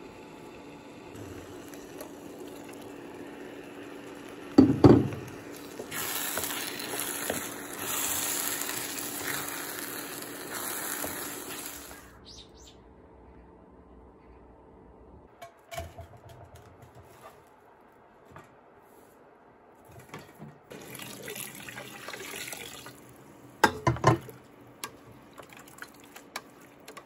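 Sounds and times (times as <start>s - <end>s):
rice sizzling in a pot: 0.0s - 12.1s.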